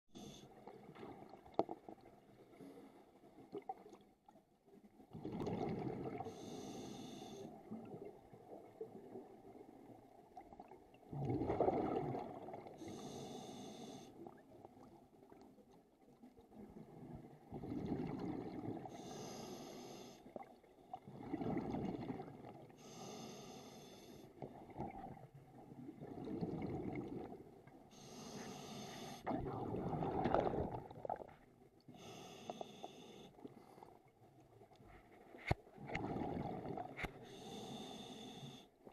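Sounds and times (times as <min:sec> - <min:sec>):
regulator hiss on inhale: 0:00.2 - 0:00.5, 0:06.3 - 0:07.6, 0:12.8 - 0:14.2, 0:18.9 - 0:20.3, 0:22.8 - 0:24.4, 0:27.9 - 0:29.3, 0:31.9 - 0:33.9, 0:37.2 - 0:38.8
exhaled bubbles underwater: 0:05.1 - 0:06.6, 0:07.5 - 0:13.1, 0:14.2 - 0:19.1, 0:20.3 - 0:22.8, 0:24.4 - 0:27.7, 0:29.2 - 0:31.4, 0:35.8 - 0:37.2.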